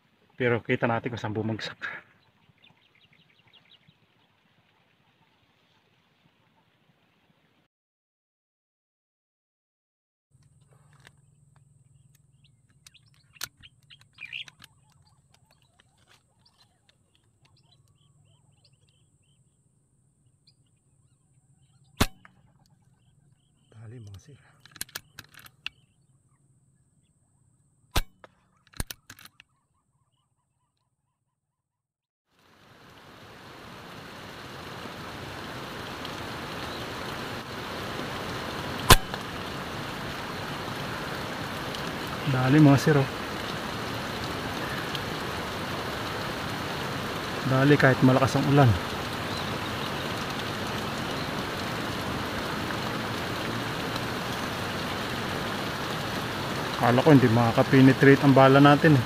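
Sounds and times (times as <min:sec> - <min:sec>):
quiet clicks: 0:10.4 - 0:18.0
air rifle shot: 0:22.0 - 0:22.3, 0:28.0 - 0:28.2, 0:38.9 - 0:39.3
heavy rain: 0:32.4 - 0:59.0.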